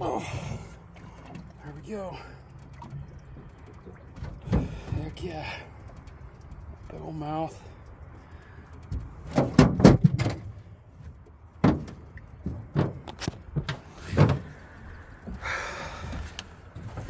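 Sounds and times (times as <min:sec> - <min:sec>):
knocks and thumps on metal deck: 0:08.9 - 0:10.6, 0:11.6 - 0:14.6.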